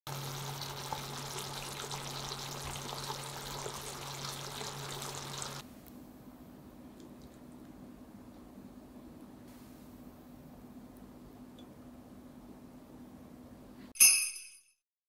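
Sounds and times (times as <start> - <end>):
sauce bubbling and crackling in pan: 0.1 - 5.6
low steady hum: 0.1 - 13.9.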